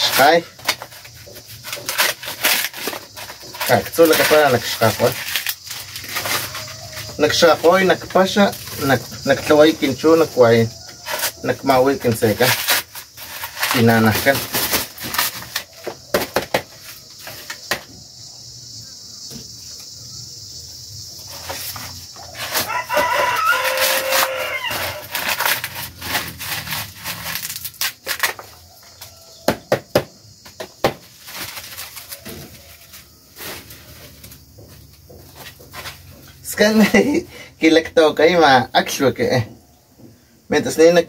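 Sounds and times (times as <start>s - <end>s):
corn husks crackling and tearing: 0.0s - 17.8s, 21.2s - 29.2s, 30.8s - 37.1s
rooster crowing: 22.3s - 25.3s.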